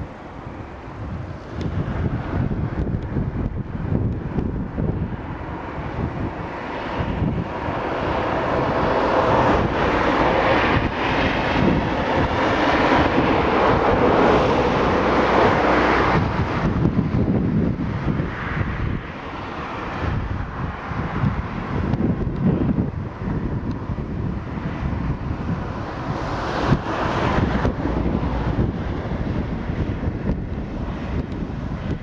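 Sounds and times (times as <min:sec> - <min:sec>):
steady rushing noise: 0:00.0 - 0:32.0
wind buffeting microphone: 0:00.0 - 0:32.0.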